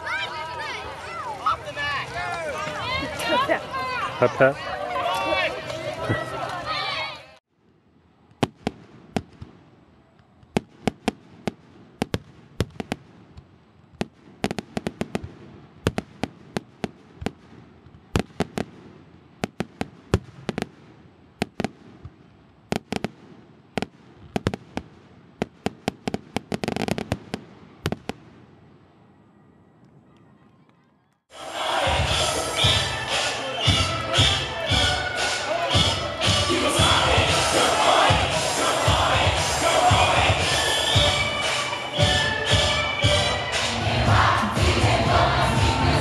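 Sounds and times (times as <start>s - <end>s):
fireworks bangs: 8.2s - 28.7s, 31.3s - 46.0s.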